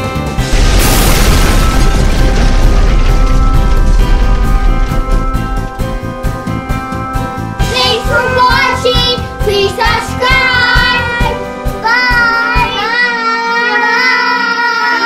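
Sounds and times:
children singing: 0:07.8 - 0:15.0.

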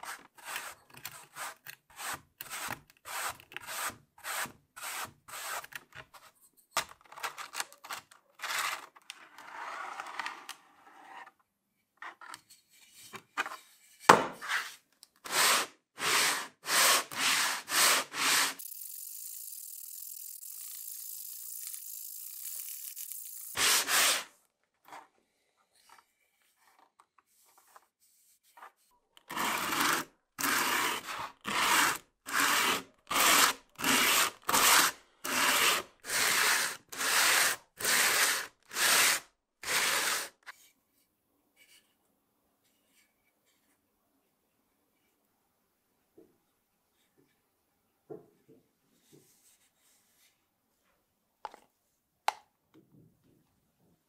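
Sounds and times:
hand tool scraping wood: 0:00.0 - 0:06.2, 0:14.4 - 0:18.6, 0:23.5 - 0:24.3, 0:29.3 - 0:40.5.

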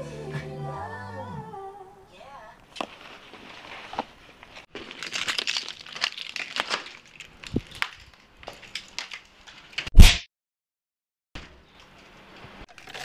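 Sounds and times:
rustling and crinkling: 0:02.6 - 0:09.9.

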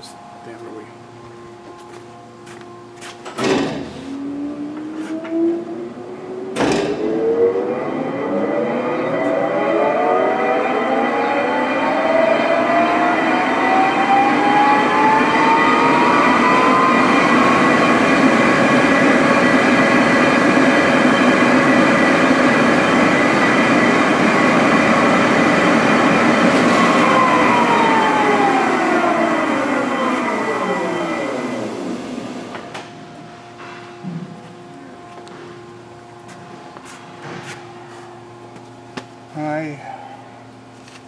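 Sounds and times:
lathe whining: 0:04.1 - 0:32.7.

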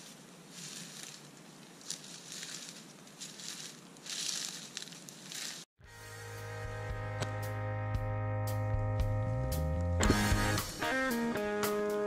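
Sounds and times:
footsteps crunching through dry leaves: 0:00.0 - 0:05.7.

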